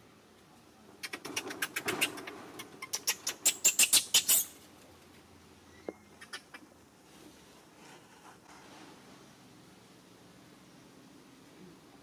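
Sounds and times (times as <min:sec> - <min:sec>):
monkeys squabbling: 0:01.0 - 0:04.6, 0:06.1 - 0:06.7.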